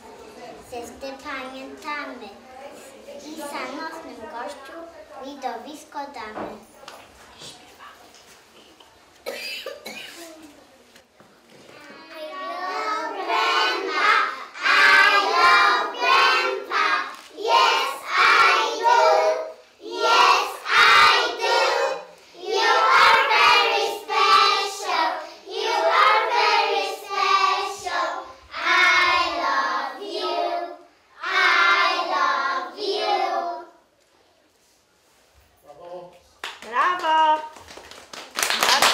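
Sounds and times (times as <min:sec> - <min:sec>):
young children singing in chorus: 0:12.0 - 0:33.8.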